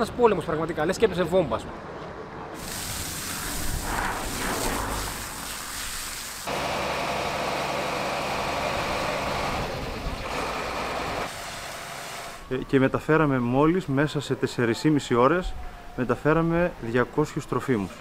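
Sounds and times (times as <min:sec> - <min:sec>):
rushing hiss of water: 0:02.6 - 0:07.0
engine running: 0:06.5 - 0:12.5.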